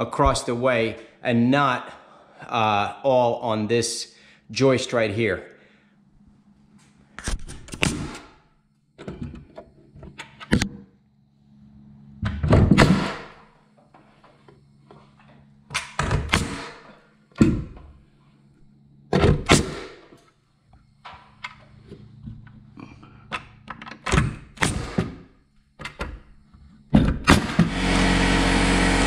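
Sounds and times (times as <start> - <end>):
nail gun shots: 7.7 - 8.3, 12.7 - 13.4, 16.0 - 16.8, 19.2 - 20.0, 24.2 - 25.2, 27.2 - 27.9.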